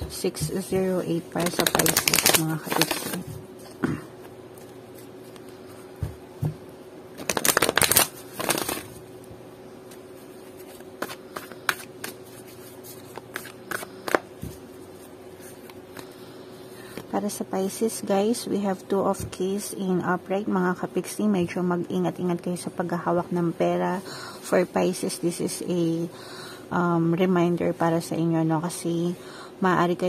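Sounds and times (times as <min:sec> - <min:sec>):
cards shuffling: 0:01.4 - 0:03.3, 0:07.2 - 0:09.0, 0:09.9 - 0:14.6.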